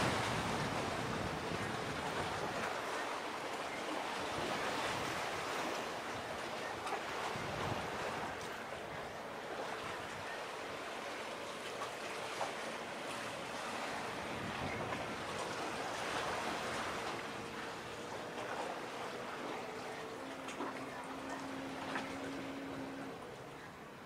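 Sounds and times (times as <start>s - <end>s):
faint boat engine hum: 0.0s - 24.0s
waves: 0.0s - 24.0s
wind: 0.0s - 24.0s.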